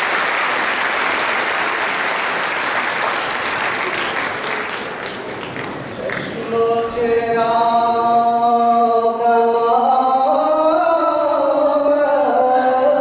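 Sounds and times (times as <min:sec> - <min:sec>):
group singing long held notes: 0:06.0 - 0:13.0.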